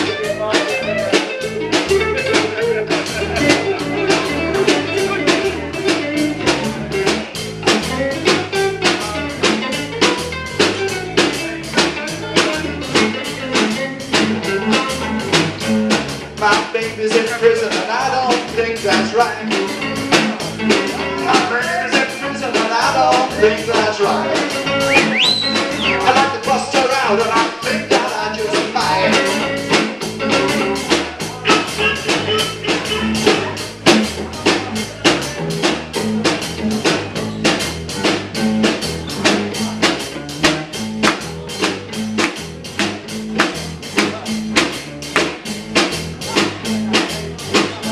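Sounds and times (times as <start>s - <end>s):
drum kit beat: 0.0s - 47.9s
guitars: 0.0s - 47.9s
person singing: 16.4s - 33.6s.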